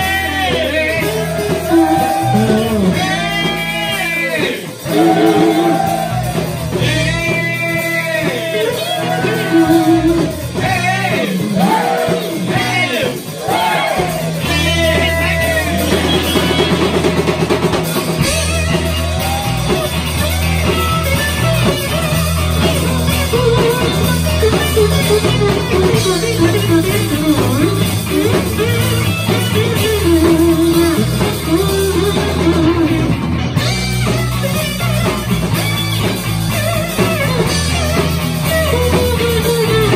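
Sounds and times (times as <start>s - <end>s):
man singing: 0.0s - 6.0s, 6.8s - 17.1s
drum kit: 0.0s - 39.9s
electric bass: 0.0s - 39.9s
electric guitars: 0.0s - 39.9s.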